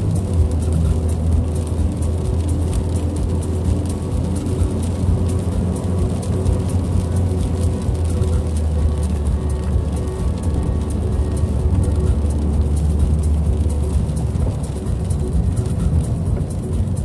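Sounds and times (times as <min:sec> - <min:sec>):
car engine and road drone: 0:00.0 - 0:17.0
tyre noise on wet road: 0:00.0 - 0:17.0.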